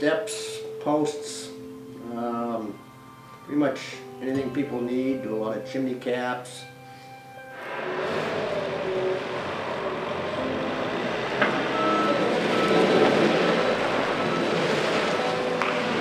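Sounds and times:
vehicle engine running: 0:07.6 - 0:16.0.

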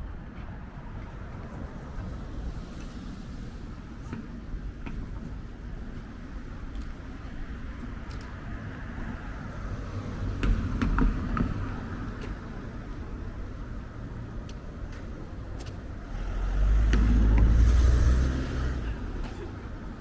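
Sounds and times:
street background noise: 0:00.0 - 0:20.0
car passing: 0:15.9 - 0:20.0.

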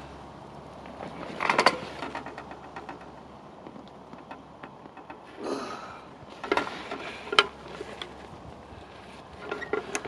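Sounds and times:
gear clicking and knocking: 0:00.8 - 0:05.3.

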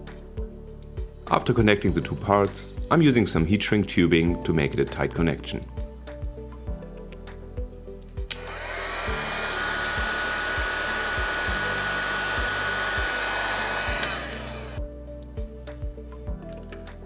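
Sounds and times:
hot air gun fan whine: 0:08.3 - 0:14.8.

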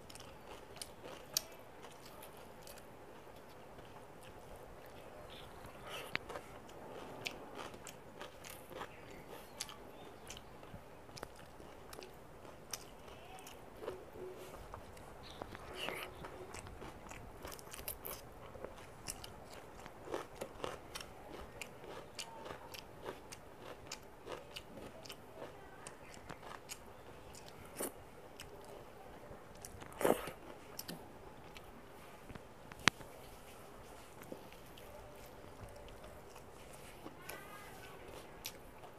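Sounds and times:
mouth chewing: 0:00.0 - 0:38.9.

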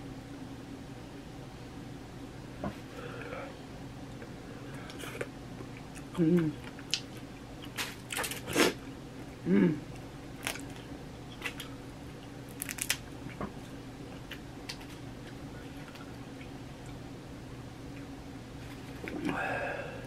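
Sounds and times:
crawfish shells cracking: 0:10.4 - 0:13.1.

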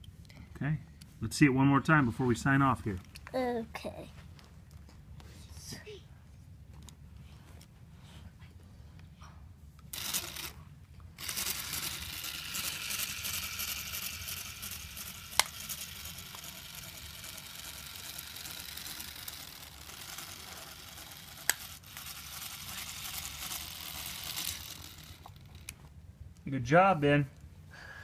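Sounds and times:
toy electric motor whirring: 0:09.9 - 0:10.6, 0:11.2 - 0:25.8.

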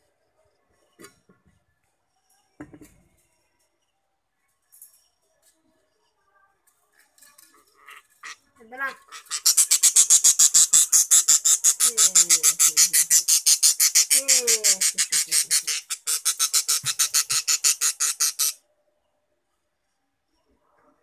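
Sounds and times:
budgerigar chirping rapidly: 0:09.1 - 0:18.6.

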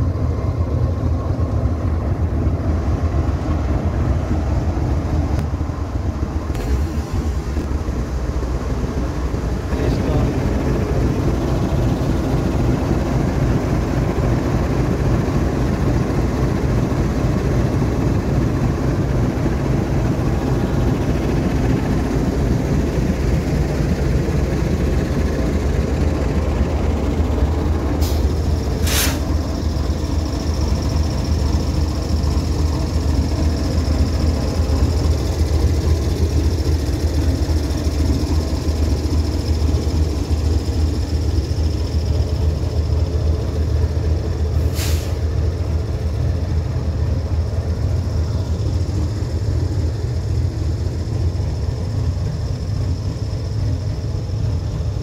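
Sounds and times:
diesel locomotive idling: 0:00.0 - 0:55.0
air hissing: 0:28.0 - 0:33.8, 0:44.6 - 0:45.5.

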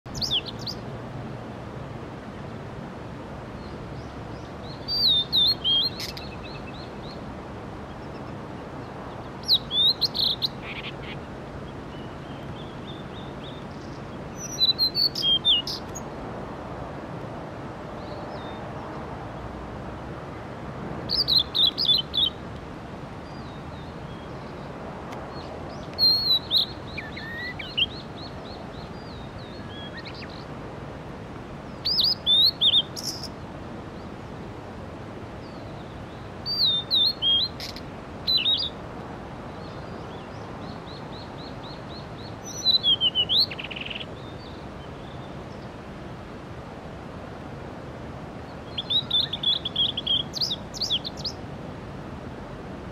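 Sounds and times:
bird singing whistled phrases: 0:00.1 - 0:00.8, 0:04.8 - 0:06.8, 0:09.5 - 0:10.9, 0:14.4 - 0:15.8, 0:26.0 - 0:28.0, 0:31.8 - 0:33.3, 0:36.4 - 0:38.7, 0:42.4 - 0:44.0, 0:48.8 - 0:51.4.

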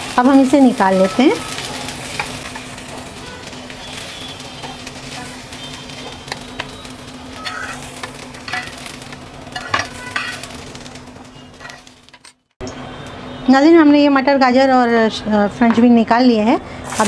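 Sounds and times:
vegetables sizzling in oil: 0:00.0 - 0:12.3, 0:16.0 - 0:17.0
metal spoon scraping a pan: 0:07.4 - 0:10.7, 0:11.4 - 0:12.4.

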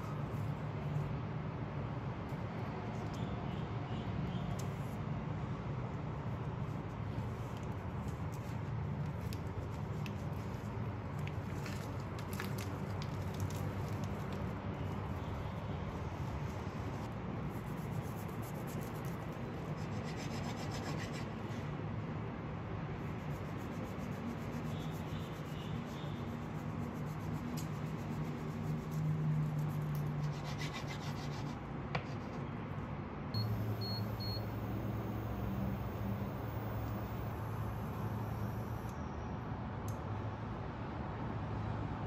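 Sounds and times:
knife sawing through nori roll: 0:30.2 - 0:31.5
short high beeps: 0:33.4 - 0:39.3.

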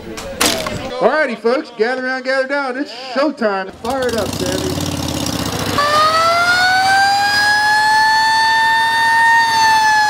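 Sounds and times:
motorcycle engine idling: 0:03.7 - 0:06.0
siren wailing: 0:05.7 - 0:10.0.

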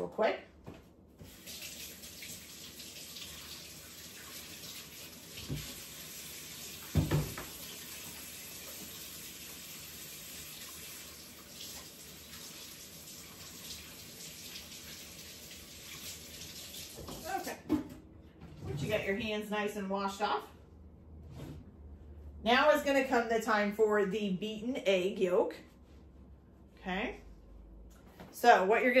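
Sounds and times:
faucet running: 0:01.2 - 0:17.6.

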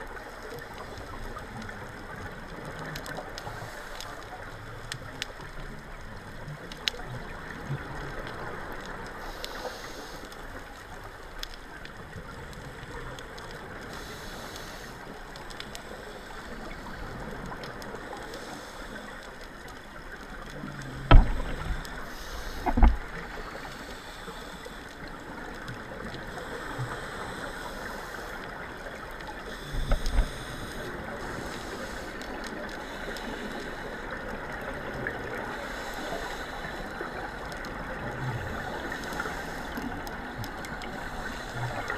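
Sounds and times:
underwater hiss: 0:03.1 - 0:04.4, 0:08.1 - 0:10.8, 0:13.6 - 0:19.4, 0:20.6 - 0:41.9
low thumps: 0:21.1 - 0:21.9.

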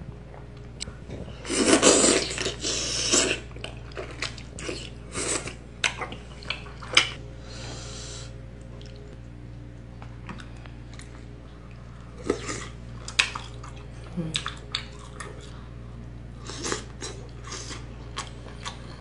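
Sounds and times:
loud slurping of noodles: 0:01.4 - 0:03.4
wet chewing and mouth clicks: 0:12.2 - 0:15.5.

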